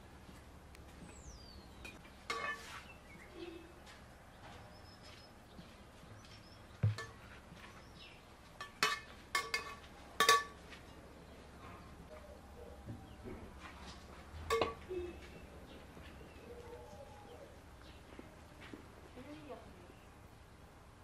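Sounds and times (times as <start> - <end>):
metal spoon clinking on pot: 2.3 - 2.7, 8.6 - 10.6, 14.5 - 14.8.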